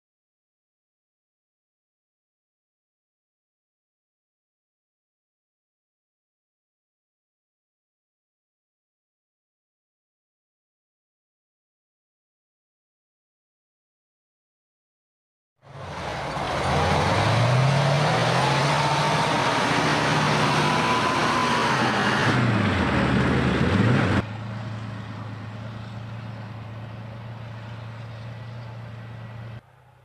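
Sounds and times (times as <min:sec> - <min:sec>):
diesel engine running hard: 0:15.6 - 0:30.0.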